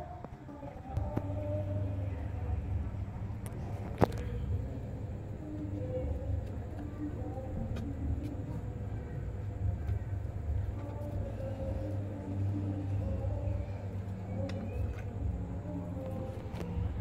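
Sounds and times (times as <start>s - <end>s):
faint distant voices: 0.0s - 17.0s
low rumble: 0.9s - 17.0s.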